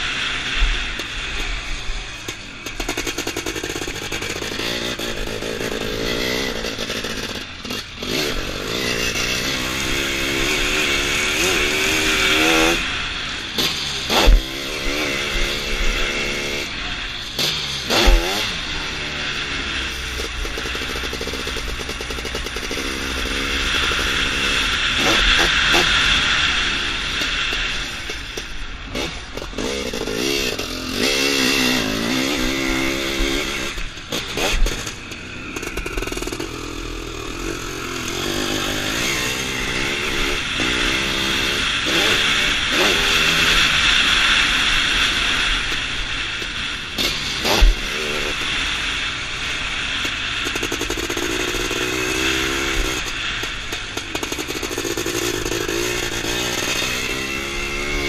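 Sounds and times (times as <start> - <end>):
racing engine revving: 2.8 - 28.1.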